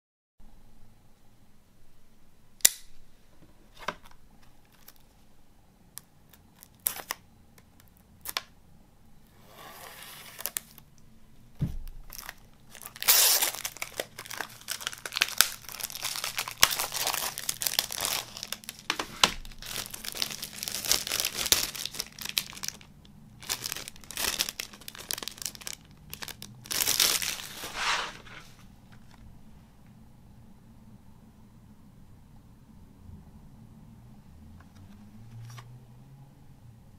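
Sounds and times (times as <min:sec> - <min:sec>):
plastic wrap crinkling: 0:06.3 - 0:07.2, 0:10.3 - 0:10.9, 0:11.6 - 0:29.2.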